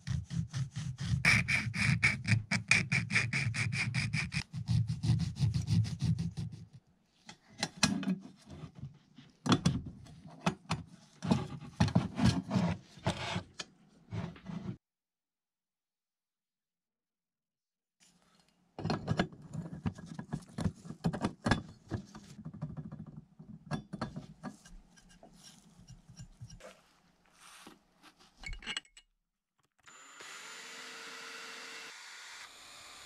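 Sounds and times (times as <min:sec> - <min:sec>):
electric drill whining: 0:29.8 - 0:33.0.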